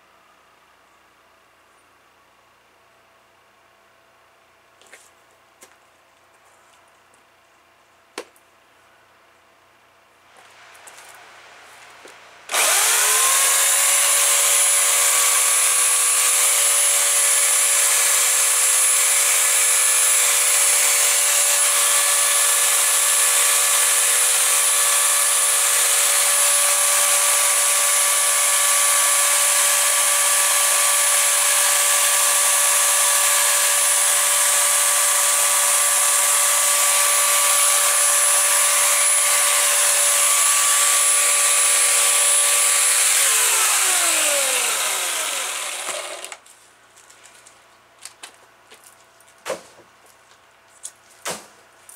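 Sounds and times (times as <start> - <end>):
electric chainsaw running: 12.5 - 46.4.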